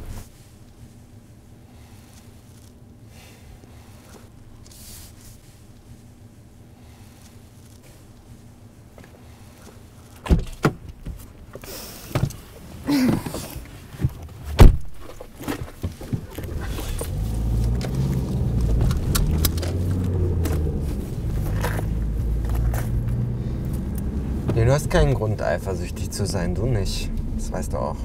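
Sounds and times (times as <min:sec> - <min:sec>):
car engine humming: 0:00.0 - 0:28.0
car door clicks and knocks: 0:10.2 - 0:11.2, 0:13.0 - 0:16.4
car door slamming: 0:10.2 - 0:11.2, 0:14.5 - 0:15.2.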